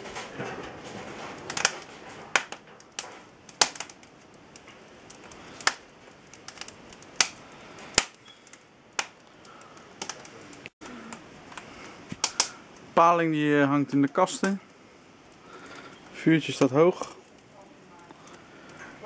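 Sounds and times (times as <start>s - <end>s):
wood fire crackling and popping: 0.0s - 19.0s
low hiss: 4.2s - 19.0s.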